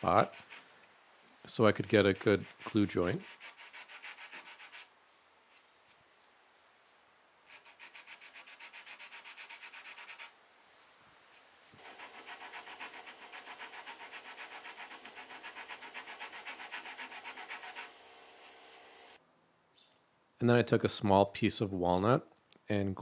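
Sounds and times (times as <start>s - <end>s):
hand file rasping on wood: 0.0s - 0.7s, 1.9s - 4.9s, 7.5s - 10.3s, 11.8s - 18.6s.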